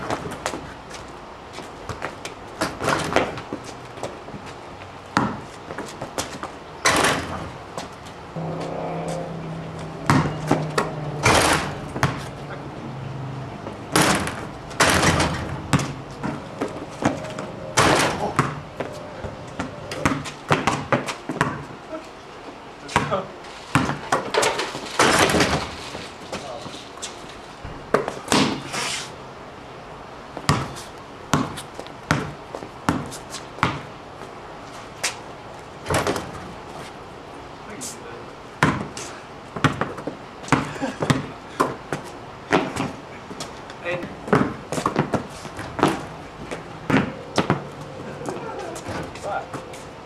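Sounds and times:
basketball bouncing on concrete: 5.2s - 7.9s, 10.0s - 12.4s, 14.0s - 19.0s, 19.6s - 21.8s, 22.9s - 24.4s, 27.6s - 28.6s, 30.4s - 33.9s, 38.6s - 39.0s, 39.6s - 47.7s
low steady hum: 7.5s - 20.7s
ball hitting basketball rim: 10.0s - 12.3s, 13.9s - 18.7s, 19.6s - 21.6s.

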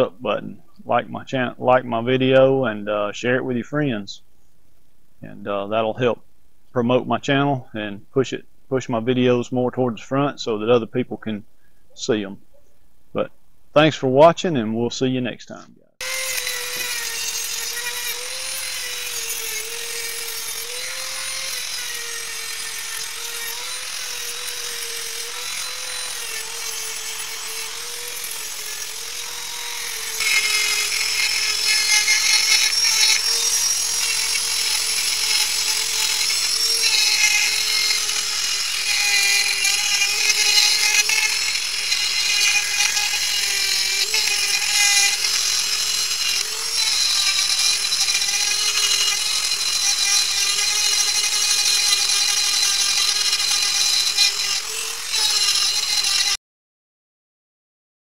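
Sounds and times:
rotary tool grinding steel: 16.0s - 56.4s.

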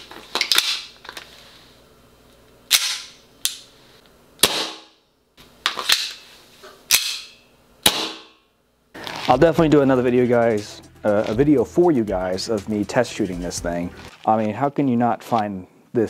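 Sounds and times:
airsoft pistol firing: 4.4s - 5.0s, 7.8s - 8.4s.

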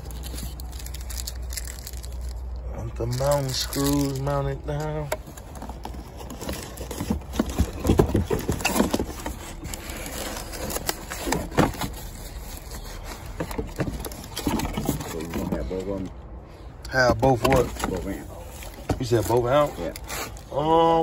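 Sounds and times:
cardboard knocking and rustling: 5.3s - 9.9s, 10.5s - 12.2s, 13.2s - 15.6s.

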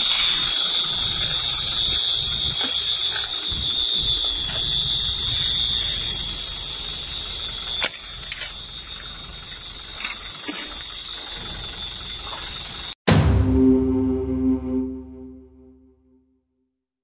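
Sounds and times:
alarm high-pitched tone: 13.1s - 16.0s.

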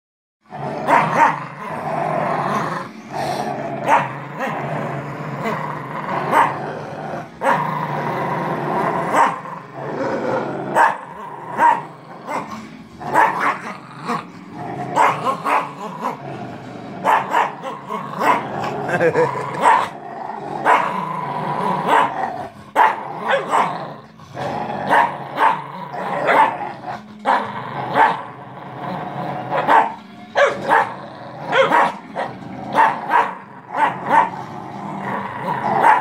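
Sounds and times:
dogs play-growling: 0.4s - 36.0s
dog barks and snarls: 0.8s - 1.8s, 3.2s - 4.7s, 5.4s - 6.6s, 8.9s - 9.5s, 10.7s - 16.2s, 17.0s - 20.0s, 20.6s - 24.0s, 24.8s - 28.3s, 29.5s - 36.0s.

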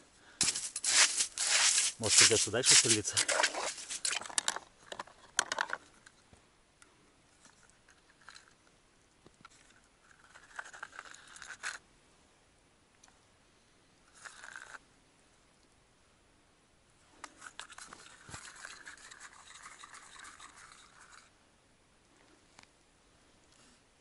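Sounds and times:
footsteps crunching in snow: 0.4s - 4.2s
plastic tackle box rummaged: 0.4s - 5.8s
rustles and clicks: 0.4s - 6.2s.

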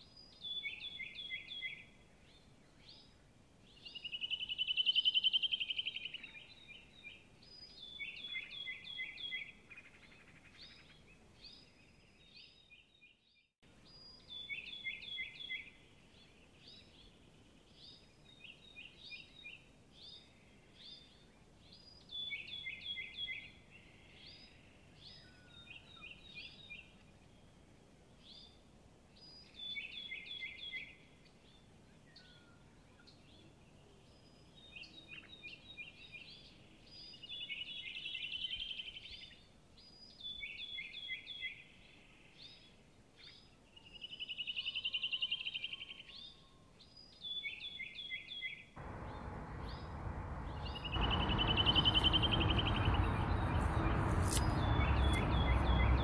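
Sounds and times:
songbirds chirping: 0.0s - 56.0s
bird trill: 48.8s - 56.0s.

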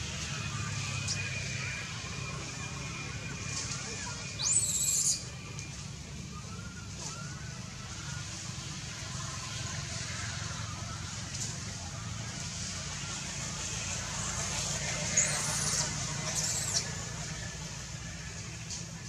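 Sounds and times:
thin gliding calls: 0.3s - 17.6s
baby monkey squealing: 4.4s - 5.2s, 15.1s - 16.9s.

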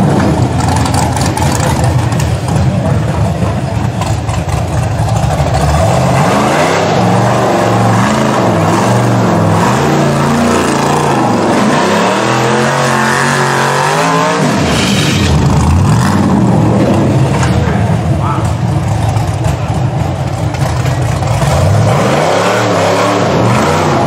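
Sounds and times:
rough low engine noise: 0.0s - 11.7s, 14.4s - 21.9s
buggy engine revving: 0.0s - 24.0s.

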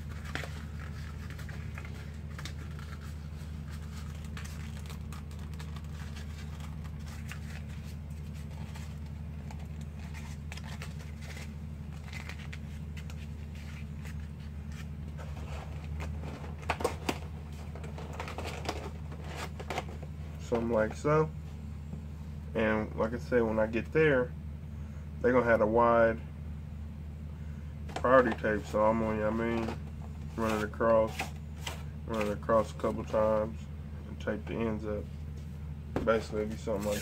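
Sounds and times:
cardboard crinkling and scraping: 0.0s - 21.1s, 27.9s - 33.2s, 36.0s - 37.0s
steady low hum: 0.0s - 37.0s.

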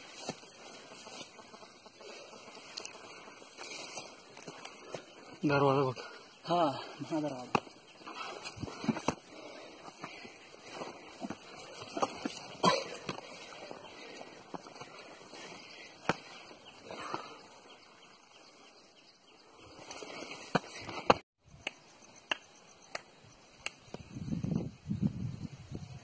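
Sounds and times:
wind buffeting microphone: 23.9s - 26.0s.

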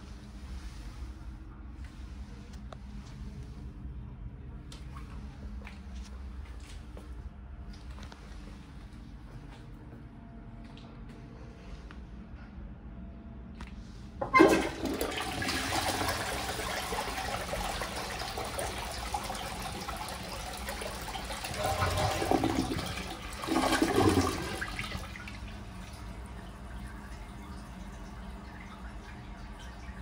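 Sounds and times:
cistern refilling trickle: 14.2s - 30.0s
toilet flushing: 14.2s - 30.0s.

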